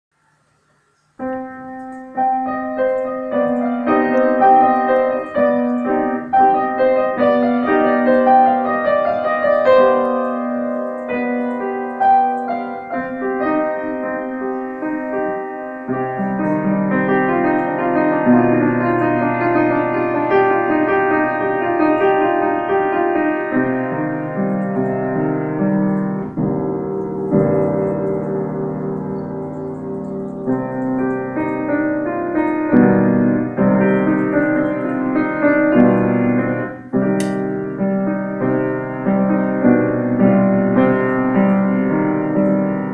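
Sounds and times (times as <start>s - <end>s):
piano music: 0.2s - 42.9s.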